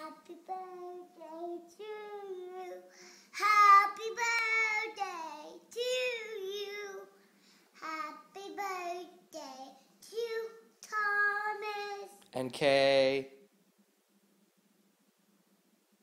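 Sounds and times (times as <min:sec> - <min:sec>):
small child singing wordlessly: 0:00.0 - 0:12.2.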